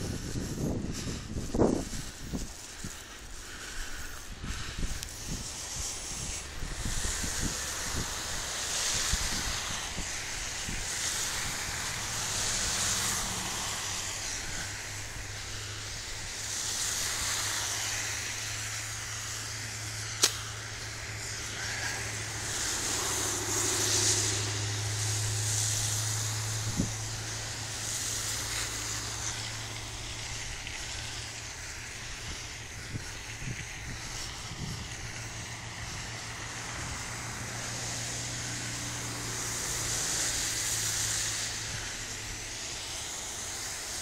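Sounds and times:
wind gusting on microphone: 0.0s - 44.0s
sharp click: 20.2s - 20.5s.

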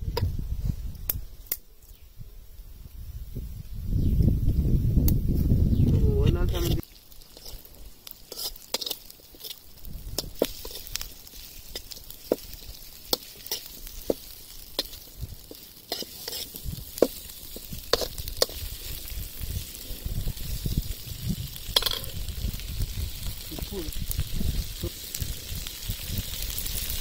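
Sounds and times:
frying sizzle: 4.3s - 27.0s
metal spoon scraping a pan: 6.2s - 9.6s, 10.2s - 19.1s, 21.7s - 22.2s.

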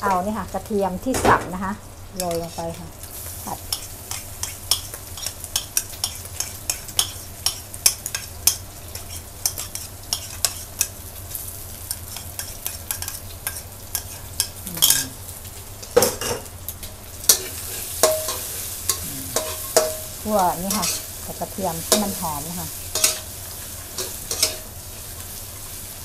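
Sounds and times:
sizzle of hot fat: 0.0s - 26.0s
metal spatula scraping a wok: 8.9s - 10.9s, 17.3s - 21.2s, 22.9s - 24.7s.

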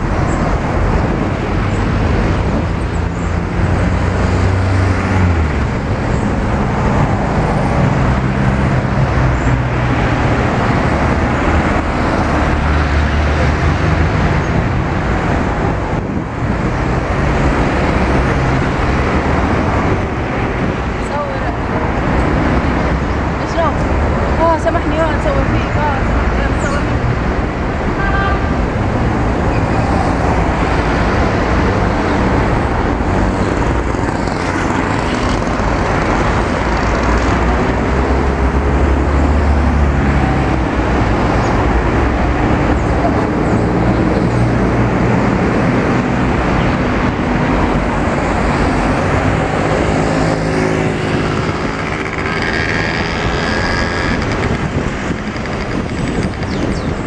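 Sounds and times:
cars passing: 0.0s - 57.0s
motorbike engines pulling away: 48.5s - 57.0s.

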